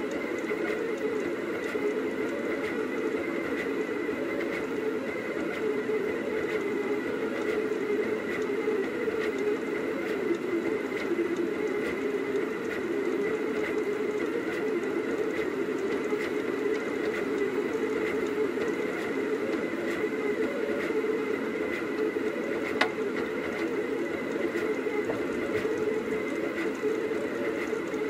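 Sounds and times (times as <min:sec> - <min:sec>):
faint irregular ticks: 0:00.0 - 0:28.0
printer motors whirring: 0:00.0 - 0:28.0.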